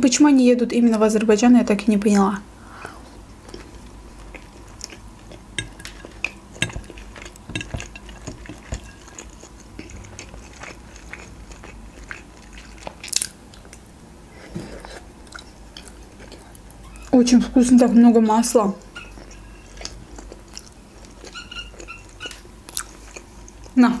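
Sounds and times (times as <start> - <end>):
person chewing food: 2.7 - 17.1, 18.8 - 23.8
fork clinking against plate: 5.6 - 9.2.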